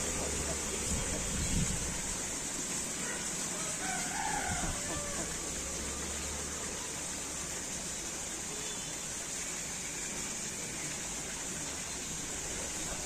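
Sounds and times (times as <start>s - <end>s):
high hiss: 0.0s - 13.0s
river water rushing: 0.0s - 13.0s.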